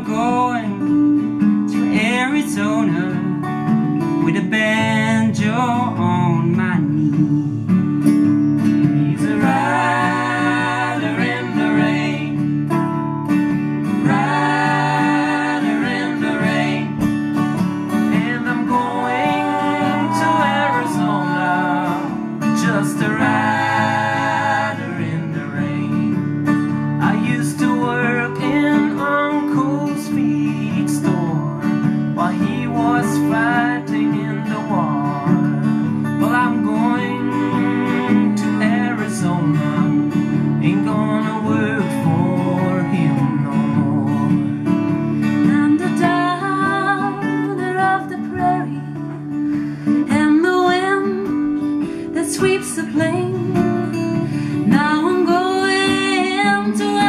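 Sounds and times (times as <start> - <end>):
acoustic guitars strummed: 0.0 - 57.0
people singing country song: 0.0 - 57.0.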